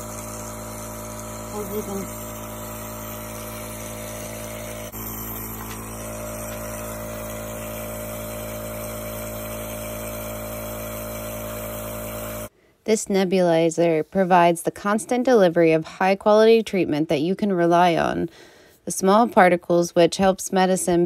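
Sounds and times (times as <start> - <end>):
nebulizer compressor humming: 0.0 - 12.6.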